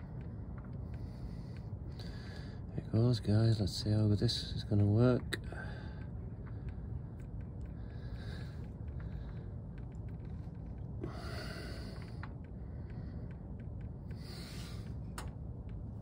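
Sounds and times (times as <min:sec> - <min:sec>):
low rumble: 0:00.0 - 0:16.0
person breathing hard: 0:00.8 - 0:02.7, 0:05.5 - 0:15.3.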